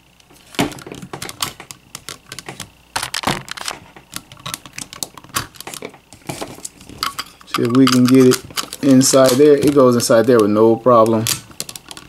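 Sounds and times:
hard plastic toy clicks and clacks: 7.0s - 12.0s.

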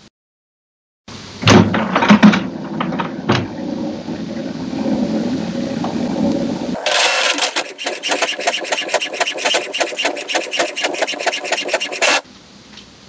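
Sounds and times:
inkjet printer printing: 6.8s - 12.2s.

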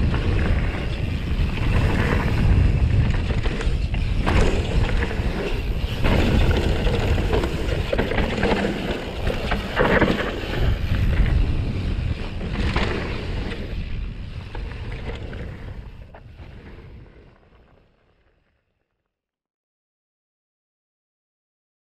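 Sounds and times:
bike knocks and rattles: 0.0s - 15.5s
wind rushing over microphone: 0.0s - 17.6s
bike tyre noise on dirt: 0.0s - 19.1s.

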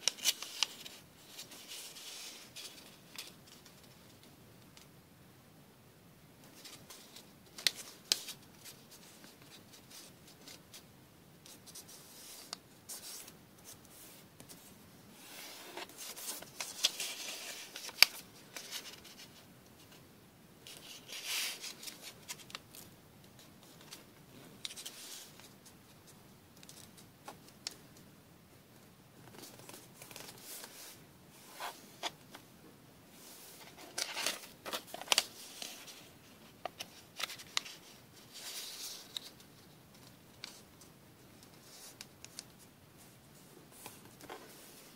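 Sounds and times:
paper rustling and crinkling: 0.0s - 4.2s, 11.5s - 20.0s, 20.7s - 25.8s, 29.3s - 32.4s, 33.2s - 44.9s
paper folds clicking: 16.3s - 19.1s.

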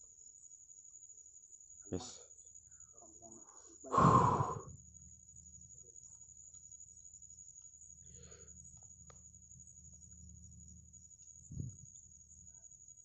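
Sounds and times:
night insects chirring: 0.0s - 13.0s
faint ticks: 6.1s - 12.1s.

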